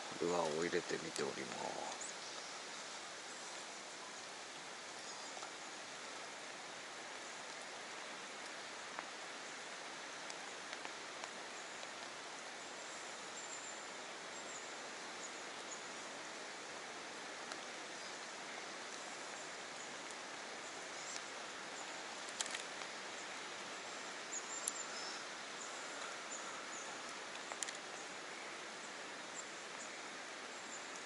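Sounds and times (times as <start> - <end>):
outdoor background hiss: 0.0 - 31.0
small sharp clicks: 22.2 - 22.9, 27.3 - 28.0.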